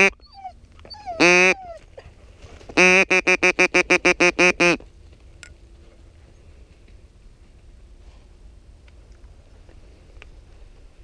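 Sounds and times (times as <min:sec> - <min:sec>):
duck call quacks: 0:01.2 - 0:01.6, 0:02.8 - 0:04.8.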